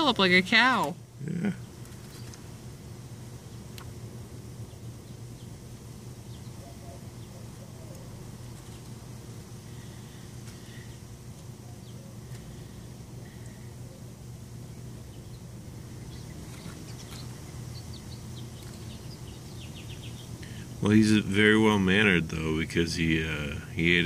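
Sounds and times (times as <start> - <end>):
steady low hum: 0.0 - 24.0
faint chirps: 4.5 - 21.8.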